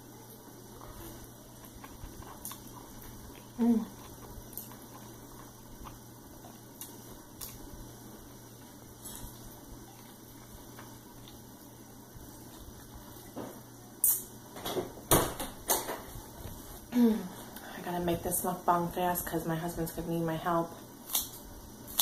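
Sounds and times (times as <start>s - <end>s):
low room hum: 0.0s - 22.0s
chewing: 0.7s - 11.6s.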